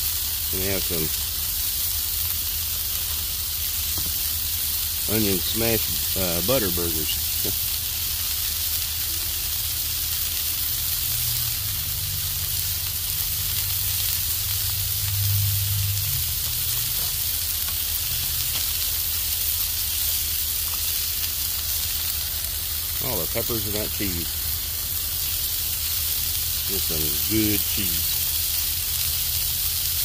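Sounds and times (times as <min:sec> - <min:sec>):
burgers sizzling on griddle: 0:00.0 - 0:30.0
low hum: 0:11.0 - 0:19.1.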